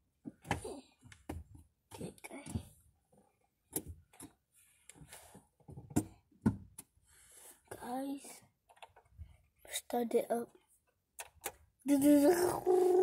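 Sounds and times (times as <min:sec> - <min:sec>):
clicks and knocks of handling: 0:00.2 - 0:06.9, 0:08.6 - 0:09.2, 0:10.8 - 0:11.7
person whispering: 0:12.1 - 0:13.0.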